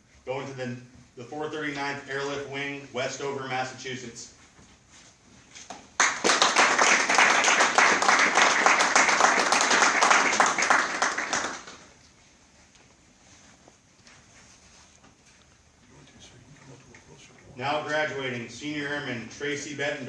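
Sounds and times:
audience applauding: 6.0s - 11.9s.

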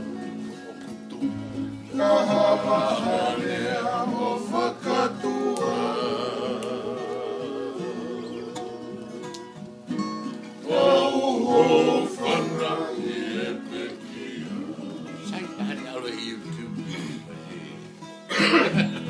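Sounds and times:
strummed acoustic guitars: 0.0s - 19.0s
men singing in harmony: 1.8s - 9.4s, 10.6s - 15.7s.

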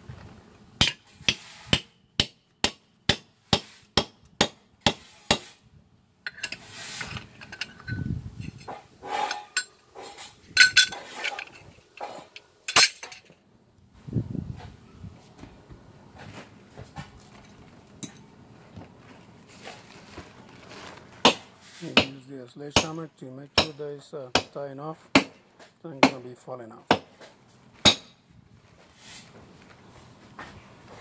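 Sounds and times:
shuffling: 14.5s - 22.0s.

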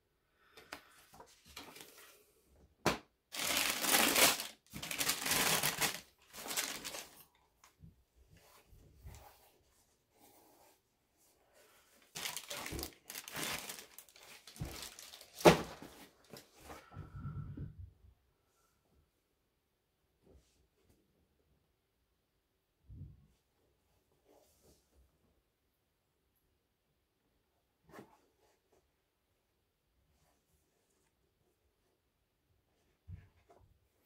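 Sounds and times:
wrapping paper crinkling: 3.3s - 7.3s, 12.0s - 15.8s.

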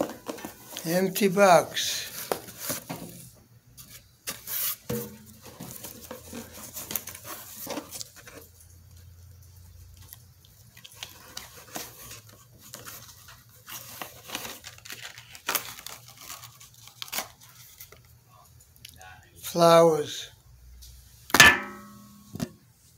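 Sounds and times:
hands rummaging in cardboard box: 2.1s - 3.2s, 11.0s - 17.3s.

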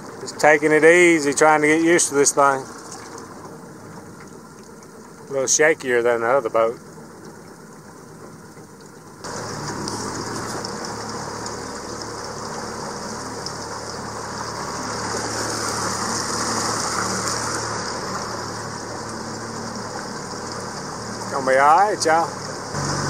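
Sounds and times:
small outboard motor running: 0.0s - 23.0s.

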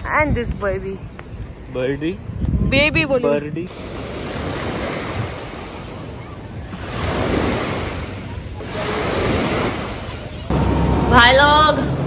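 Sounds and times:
wind buffeting microphone: 0.0s - 10.6s
waves washing onto beach: 3.7s - 10.5s.

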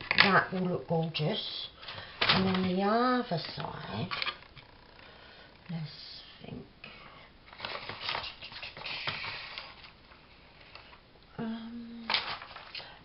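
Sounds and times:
hand rummaging through paper: 1.9s - 4.2s, 7.5s - 10.0s, 12.0s - 12.8s
person humming: 11.3s - 12.1s.

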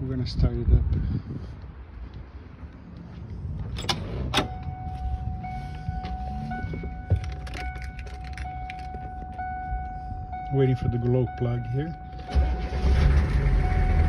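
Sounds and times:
car door latch clicks: 3.6s - 4.8s
electronic warning tone: 4.4s - 14.0s
keys jangling: 7.1s - 9.3s.

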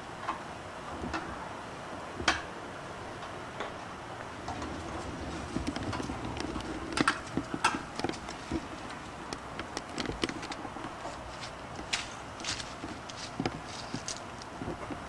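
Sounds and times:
puppies scuffling: 4.2s - 15.0s
claws clicking and tapping: 4.4s - 15.0s
bone being chewed: 5.5s - 15.0s.

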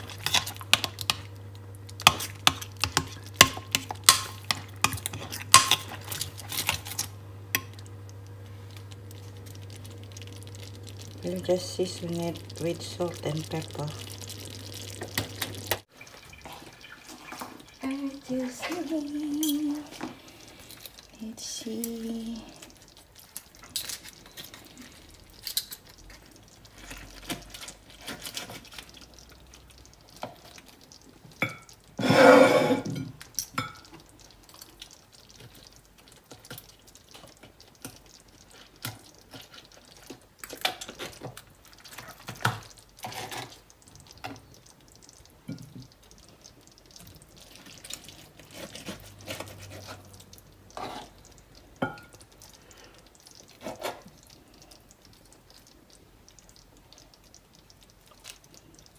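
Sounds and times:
cutlery scraping on cutting board: 32.0s - 33.0s.

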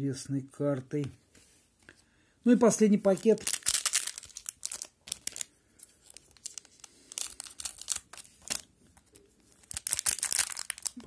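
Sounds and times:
foil wrapper crinkling and tearing: 3.0s - 11.0s.

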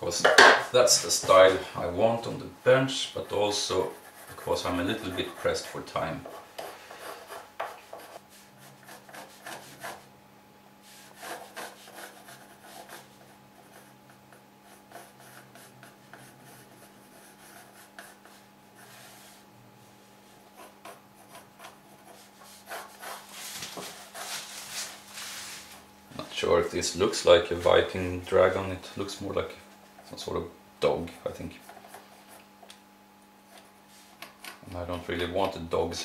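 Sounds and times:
pencil scratching on wood: 3.8s - 10.1s, 10.9s - 19.3s, 20.5s - 24.4s
hand rubbing on wood: 22.2s - 25.8s.

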